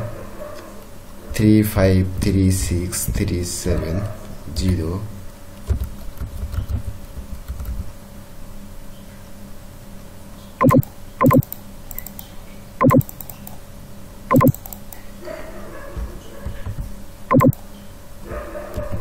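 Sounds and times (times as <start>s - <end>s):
short pitched tones: 10.6s - 11.5s, 12.8s - 13.1s, 14.3s - 14.6s, 17.3s - 17.6s
keyboard keys tapping: 10.6s - 12.2s, 12.8s - 13.5s, 14.3s - 14.9s, 17.3s - 17.6s.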